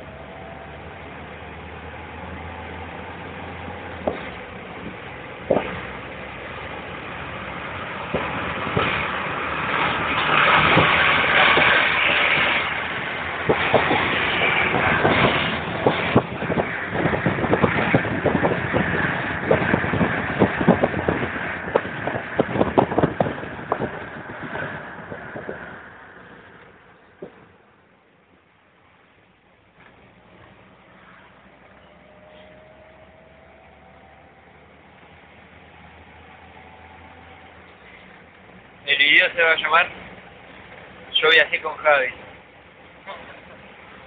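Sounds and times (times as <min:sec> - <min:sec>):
car engine: 0:00.0 - 0:44.0
wind noise: 0:03.3 - 0:27.6.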